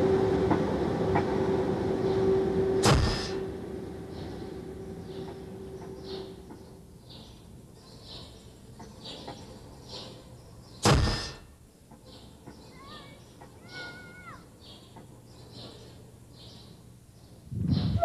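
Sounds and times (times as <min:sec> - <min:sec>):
sharp loud crack: 0:02.8 - 0:03.4.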